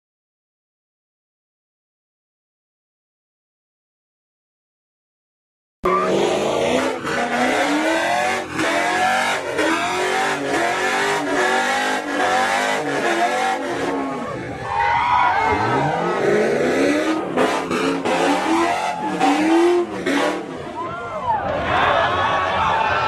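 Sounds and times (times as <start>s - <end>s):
car engine revving: 5.9s - 14.8s, 15.4s - 20.8s
tyres screeching: 12.1s - 20.8s.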